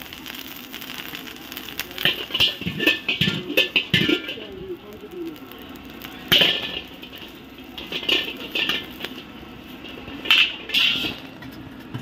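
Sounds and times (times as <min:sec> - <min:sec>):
steel ladle scraping wok: 0:02.0 - 0:04.4, 0:06.3 - 0:11.3.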